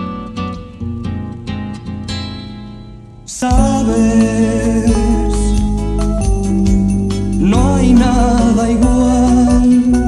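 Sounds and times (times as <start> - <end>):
acoustic guitar plucking chords: 0.0 - 10.0
low bass notes: 0.0 - 10.0.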